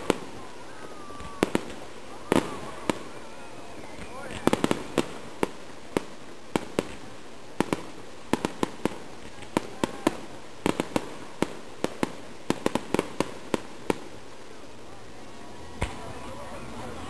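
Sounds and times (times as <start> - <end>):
fireworks bangs and cracks: 0.0 - 17.0.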